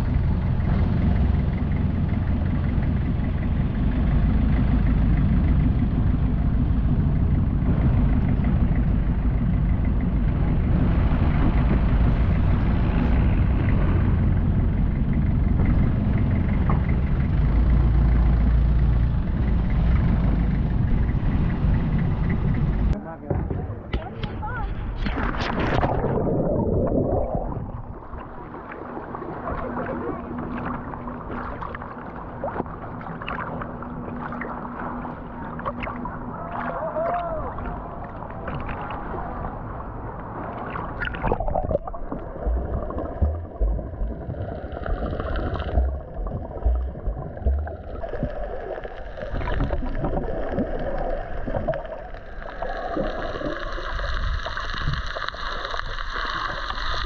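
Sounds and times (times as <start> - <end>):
boat engine hum underwater: 0.0 - 57.0
muffled underwater bubbling: 0.0 - 57.0
water thumping against camera: 40.6 - 50.7.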